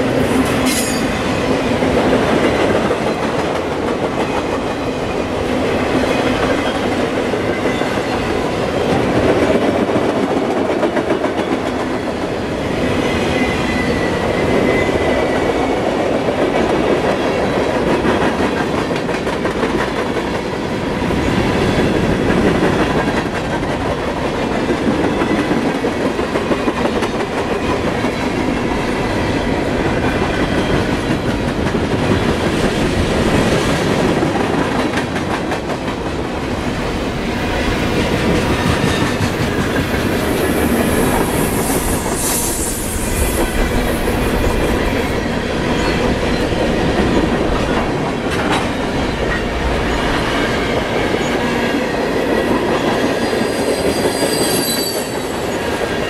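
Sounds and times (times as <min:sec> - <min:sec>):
steel wheels rumbling on rails: 0:00.0 - 0:56.0
high hissing squeal: 0:40.1 - 0:45.2, 0:53.2 - 0:55.6
thin wheel squeals: 0:53.6 - 0:55.4.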